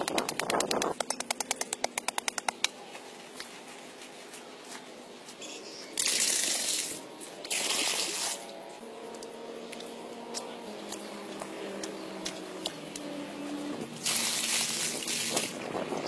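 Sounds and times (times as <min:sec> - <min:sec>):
water pouring onto earth: 0:14.0 - 0:15.6.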